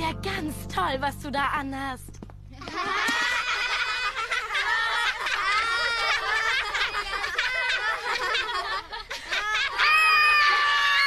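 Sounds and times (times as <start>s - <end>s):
cartoon voices laughing: 2.6s - 11.0s.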